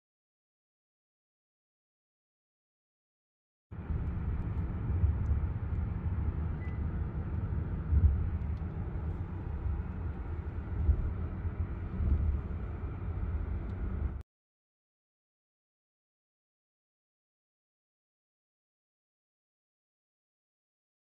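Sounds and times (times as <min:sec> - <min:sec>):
car road noise rumble: 0:03.8 - 0:14.2.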